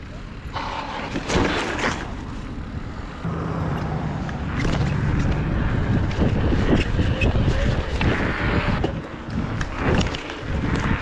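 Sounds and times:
bicycle tyre rumble: 0:00.0 - 0:11.0
wind buffeting microphone: 0:02.6 - 0:11.0.

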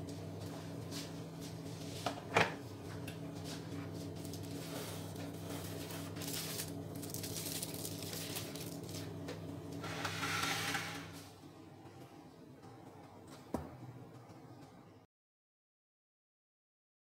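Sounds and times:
steady low hum: 0:00.0 - 0:15.1
foil rustling: 0:03.4 - 0:09.2
metal tin scraping: 0:09.8 - 0:11.2.

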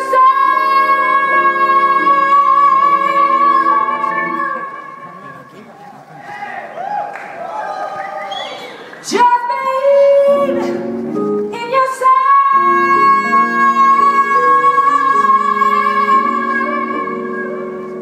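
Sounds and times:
woman singing: 0:00.0 - 0:05.0, 0:09.0 - 0:18.0.

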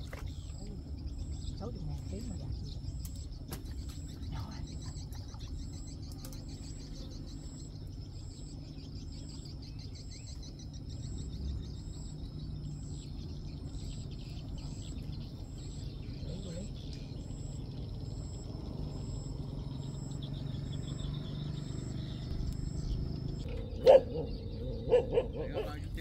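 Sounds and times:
low rumble of wind: 0:00.0 - 0:26.0.

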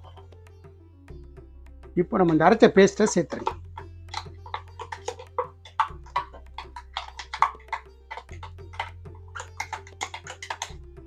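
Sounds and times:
low sustained bass notes: 0:00.0 - 0:04.8, 0:05.5 - 0:09.3, 0:10.7 - 0:11.0
quick percussion hits: 0:02.2 - 0:10.8.

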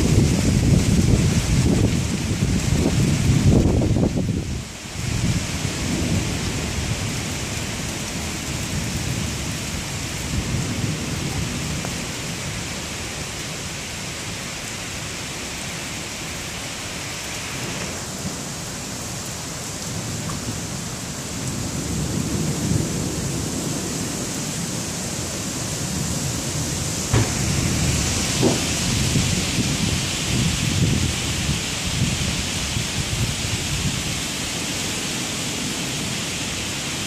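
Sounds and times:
low rumbling thunder: 0:00.0 - 0:04.4, 0:05.1 - 0:12.2, 0:25.9 - 0:34.1
steady rain hiss: 0:00.0 - 0:37.0.

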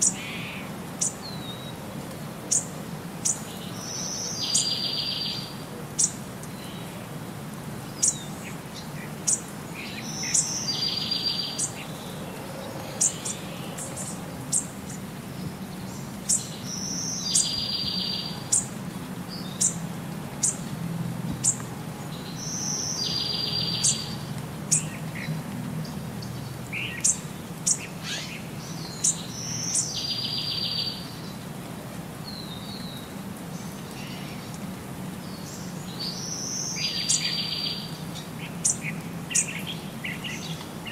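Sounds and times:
bird-like chirps and trills: 0:08.0 - 0:19.8, 0:21.4 - 0:31.4.

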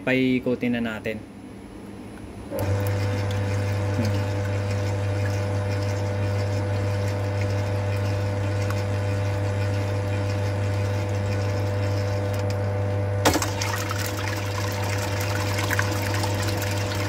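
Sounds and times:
stand mixer motor running: 0:02.6 - 0:17.0
whisk rattling in metal bowl: 0:02.9 - 0:12.5.

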